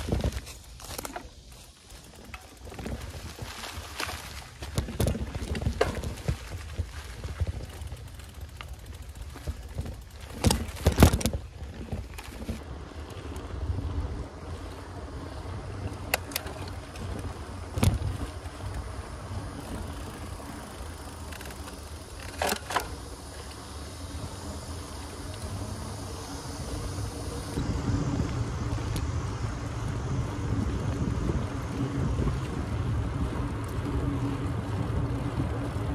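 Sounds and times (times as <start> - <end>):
bike knocks and rattles: 0.0 - 14.0, 15.3 - 24.5
wind rumbling on microphone: 0.0 - 35.9.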